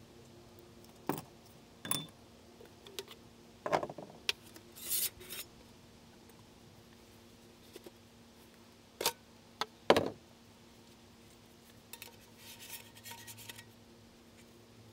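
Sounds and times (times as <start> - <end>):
scraping rustle: 12.0 - 13.7.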